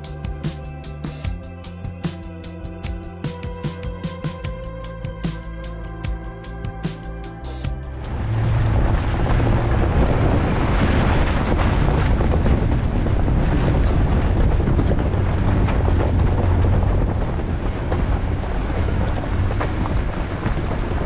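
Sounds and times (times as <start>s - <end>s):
heavy vehicle rumble: 7.3s - 21.0s
wind buffeting camera: 7.9s - 21.0s
tyres rolling over gravel: 8.0s - 21.0s.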